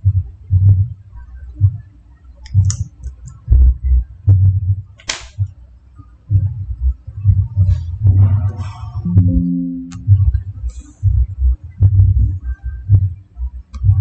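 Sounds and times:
dull low thumps: 0.0 - 1.0, 3.5 - 4.9, 6.3 - 13.2.

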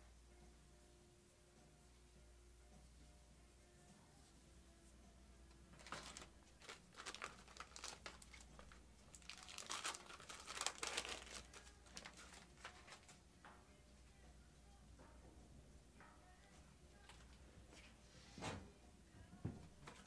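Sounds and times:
packaging crinkling and rustling: 5.7 - 13.2.

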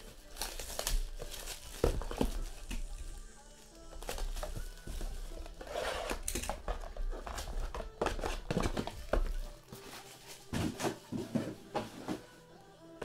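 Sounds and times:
plastic shrink-wrap crinkling: 0.0 - 11.1
cardboard boxes clicking and knocking: 0.4 - 2.9, 4.0 - 9.4.

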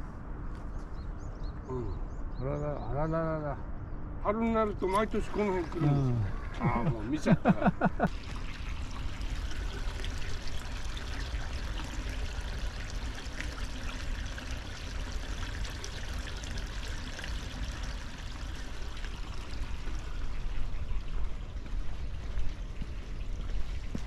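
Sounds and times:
water trickling in a channel: 4.6 - 24.0.

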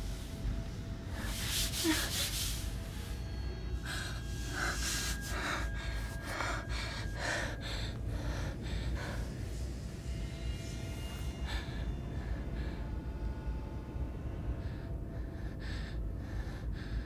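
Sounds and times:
low steady drone: 0.0 - 17.0
woman breathing heavily and gasping: 1.0 - 3.2, 3.8 - 9.8, 14.4 - 17.0.

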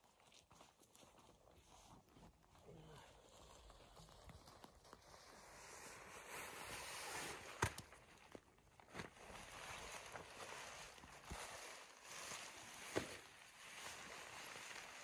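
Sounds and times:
rain poncho and backpack rustling: 3.2 - 15.0.

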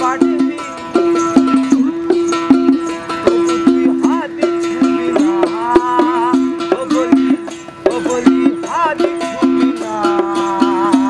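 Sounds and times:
man singing: 0.0 - 11.0
plucked single-string lute: 0.0 - 11.0.

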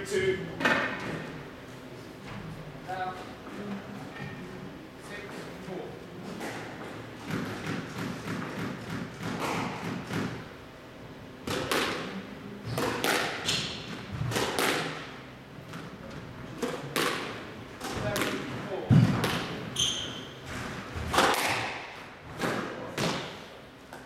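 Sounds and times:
squash ball hitting rackets and walls: 6.3 - 10.6, 11.4 - 24.0.

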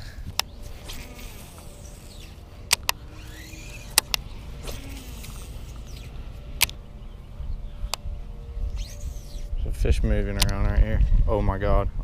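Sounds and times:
fishing reel cranking: 0.0 - 6.8, 8.7 - 9.5
sharp clicks: 0.3 - 6.8
wind rumble on microphone: 4.2 - 12.0.

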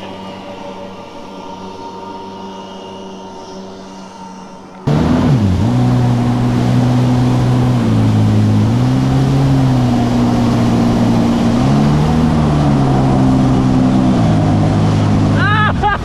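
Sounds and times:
jet ski engine running hard: 4.8 - 16.0.

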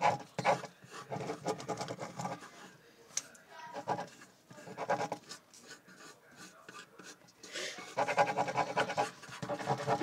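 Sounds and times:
pencil scribbling on paper: 0.0 - 2.7, 3.7 - 7.2, 7.8 - 10.0.

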